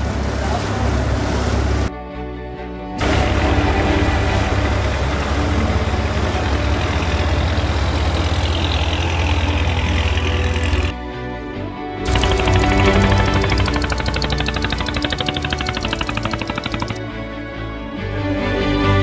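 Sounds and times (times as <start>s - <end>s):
boat engine throbbing: 0.0s - 1.9s, 3.0s - 11.0s, 12.0s - 17.0s.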